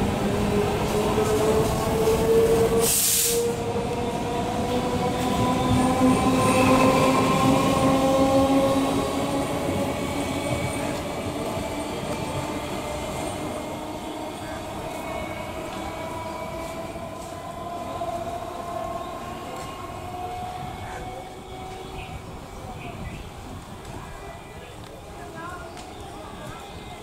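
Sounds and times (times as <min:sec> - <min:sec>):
short burst of hiss: 0:02.8 - 0:03.5.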